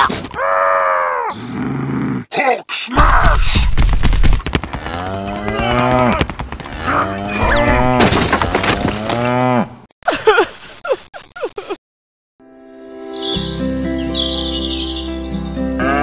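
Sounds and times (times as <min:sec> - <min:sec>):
cow mooing: 0:04.8 - 0:08.0.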